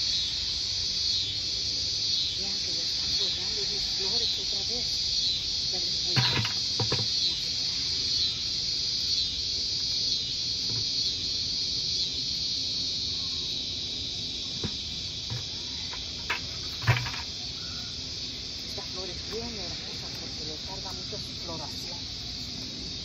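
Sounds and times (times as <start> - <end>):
insect chorus: 0.0 - 23.0
sharp clicks and knocks: 6.2 - 7.2, 14.6 - 17.3.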